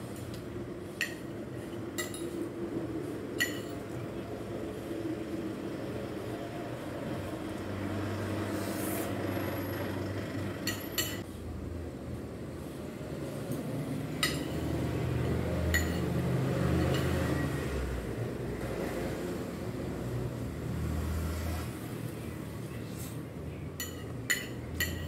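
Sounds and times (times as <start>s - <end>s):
fork and spoon clinking on plate: 3.4s - 3.9s, 14.2s - 14.6s, 15.7s - 16.1s, 23.8s - 25.0s.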